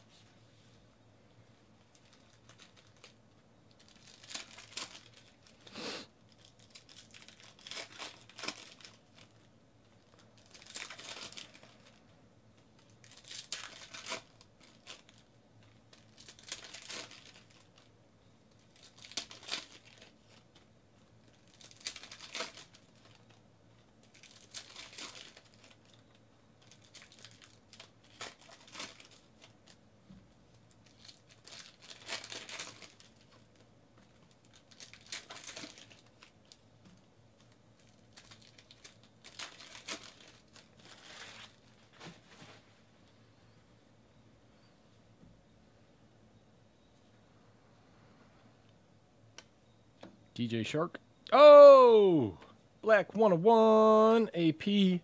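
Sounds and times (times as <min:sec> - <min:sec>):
foil wrappers tearing and crinkling: 0:01.9 - 0:05.7, 0:06.3 - 0:12.0, 0:12.8 - 0:17.9, 0:18.5 - 0:23.4, 0:24.0 - 0:29.8, 0:30.7 - 0:36.6, 0:37.4 - 0:42.4.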